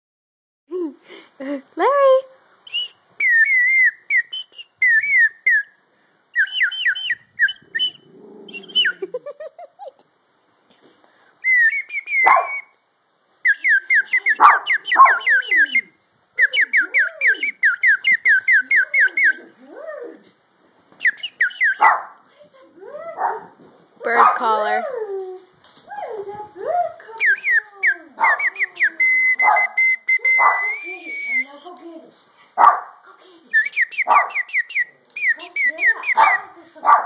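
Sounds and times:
bird-call whistle chirps and trills: 2.7s - 5.7s, 6.4s - 9.0s, 11.5s - 12.8s, 13.4s - 19.4s, 21.0s - 21.9s, 27.2s - 31.6s, 33.6s - 36.4s
dog whining: 7.4s - 9.1s, 13.8s - 20.4s, 27.2s - 31.6s.

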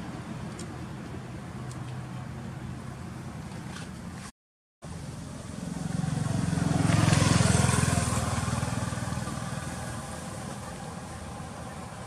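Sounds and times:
motorbike passing by: 4.9s - 12.0s.

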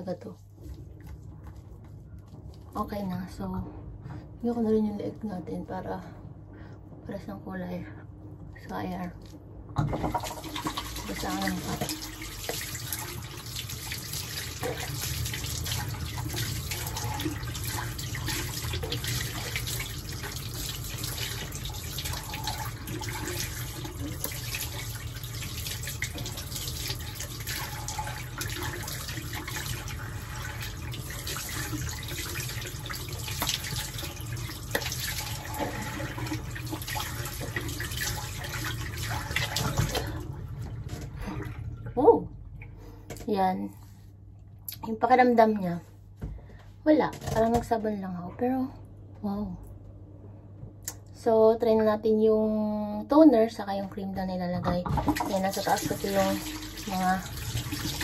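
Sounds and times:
tap water running into sink: 9.8s - 41.3s, 54.7s - 58.0s.

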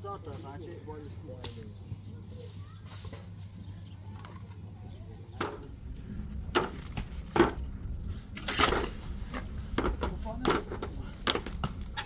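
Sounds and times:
steady low hum: 0.0s - 12.0s
knocks and scrapes: 5.4s - 12.0s.

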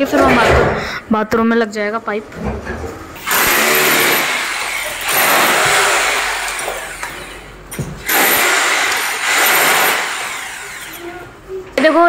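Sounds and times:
hammer drill boring into wall: 3.2s - 7.4s, 8.0s - 11.1s.

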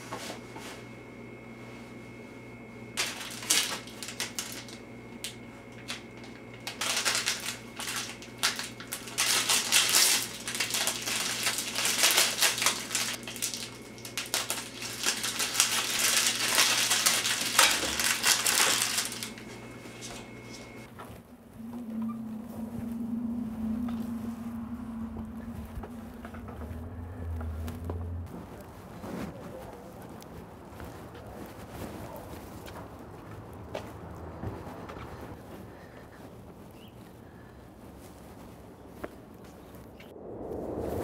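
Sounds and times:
steady low hum: 0.0s - 41.0s
plastic film crinkling: 3.0s - 21.3s.

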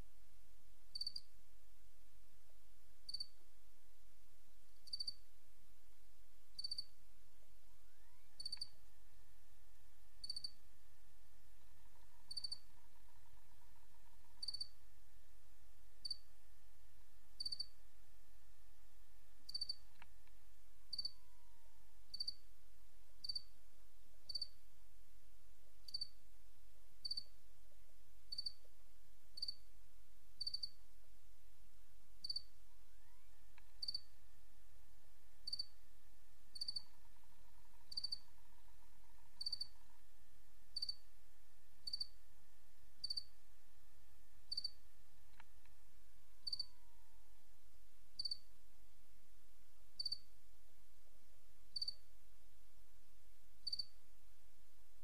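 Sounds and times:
low hum: 0.0s - 55.0s
insect chirping: 0.9s - 1.3s, 3.1s - 3.4s, 4.8s - 5.2s, 6.5s - 6.9s, 7.8s - 8.8s, 10.2s - 10.6s, 11.7s - 14.8s, 16.0s - 16.3s, 17.4s - 17.8s, 19.5s - 20.0s, 20.9s - 22.4s, 23.2s - 23.5s, 24.3s - 24.6s, 25.8s - 26.2s, 27.0s - 27.3s, 28.3s - 28.6s, 29.4s - 29.7s, 30.4s - 30.8s, 32.2s - 34.1s, 35.4s - 35.7s, 36.5s - 40.0s, 40.8s - 41.0s, 41.8s - 42.2s, 43.0s - 43.4s, 44.5s - 44.8s, 46.4s - 47.0s, 48.2s - 48.5s, 50.0s - 50.3s, 51.7s - 52.0s, 53.6s - 54.0s.

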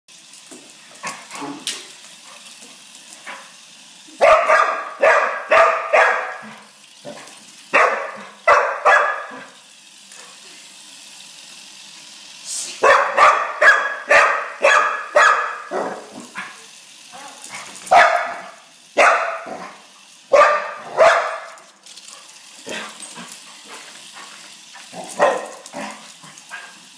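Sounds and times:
dog barking excitedly: 4.2s - 9.6s, 12.8s - 21.6s, 24.9s - 26.9s.

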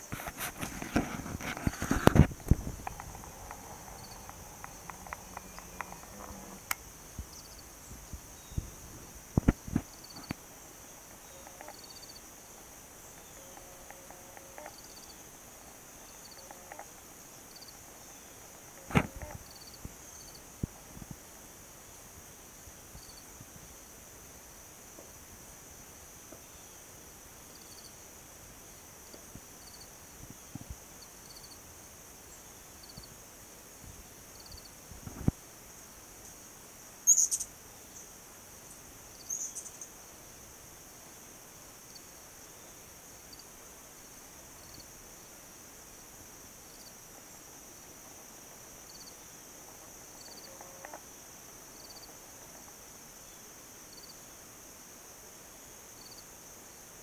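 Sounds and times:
insects buzzing: 0.0s - 57.0s
soft insect chirp: 0.0s - 57.0s
sharp clicks: 1.6s - 6.8s.

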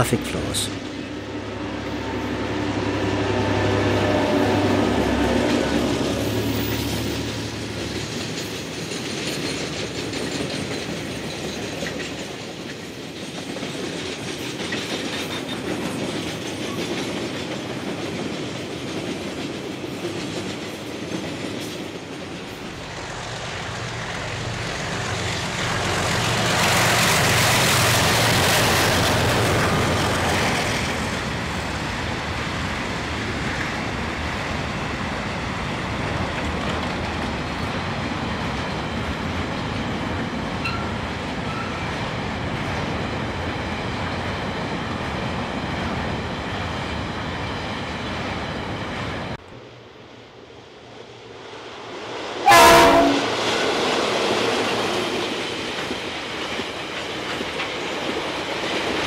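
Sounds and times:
freight train wagons rolling: 4.0s - 45.1s.

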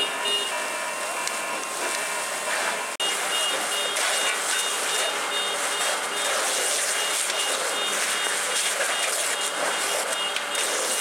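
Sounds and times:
water spray and flames hissing: 0.5s - 11.0s
high electronic beeps: 3.0s - 11.0s.

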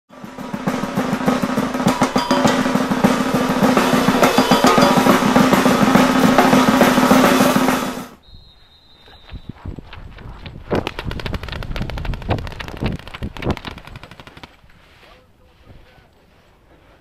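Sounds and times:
fast drums and snare rolls: 0.1s - 8.2s
low held tone: 1.8s - 7.7s.

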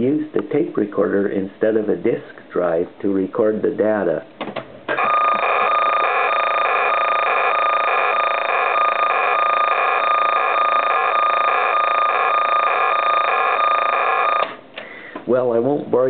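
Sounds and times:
cassette data tones whine: 4.9s - 14.6s.

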